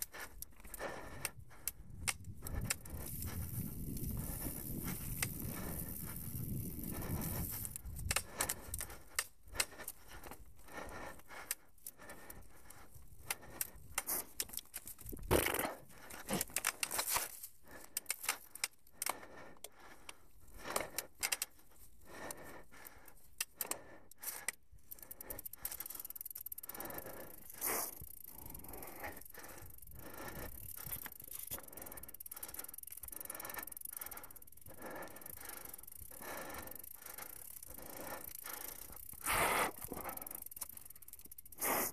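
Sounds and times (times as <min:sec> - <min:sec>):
bike tyres clicking and rattling: 0:00.0 - 0:41.9
rushing noise of bike riding: 0:00.0 - 0:41.9.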